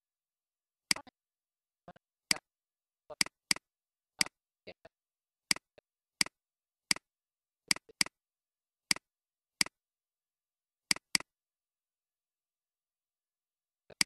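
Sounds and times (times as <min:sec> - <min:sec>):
computer mouse button clicking: 0:10.9 - 0:11.3.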